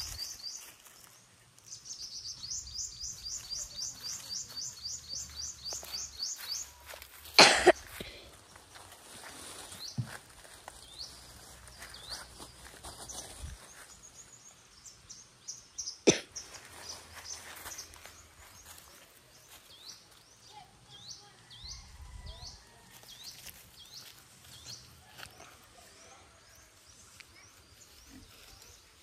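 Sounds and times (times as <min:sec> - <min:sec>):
bird chirping: 0:00.0 - 0:06.9, 0:10.8 - 0:24.9.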